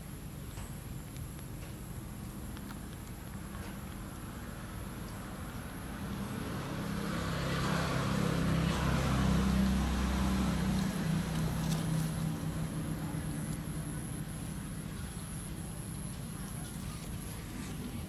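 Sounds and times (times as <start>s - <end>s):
vehicle engine passing by: 5.6s - 14.8s.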